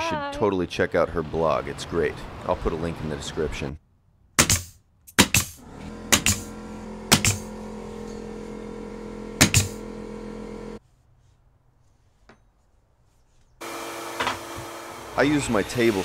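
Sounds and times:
flooring stapler bangs: 4.4 - 7.6, 9.4 - 9.8
air compressor humming: 5.6 - 10.8, 13.6 - 16.0.

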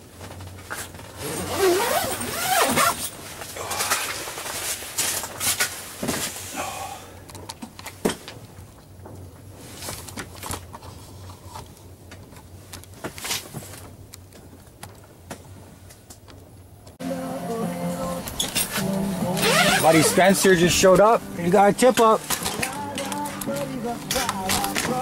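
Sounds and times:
low steady hum: 16.4 - 25.0
fabric rustling: 18.4 - 25.0.

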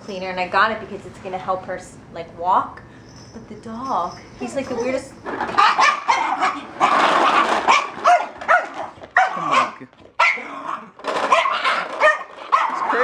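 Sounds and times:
dog barking: 5.6 - 13.0.

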